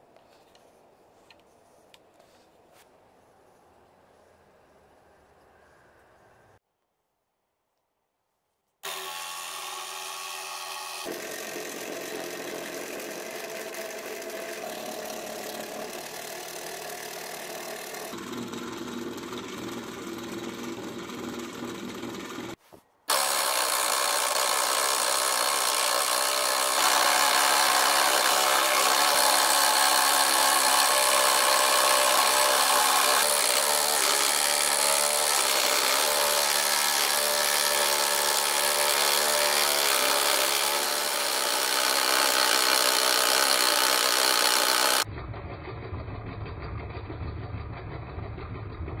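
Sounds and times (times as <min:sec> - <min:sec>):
small motor whine: 0:08.8 - 0:45.0
blade rasping through sheet: 0:10.4 - 0:45.1.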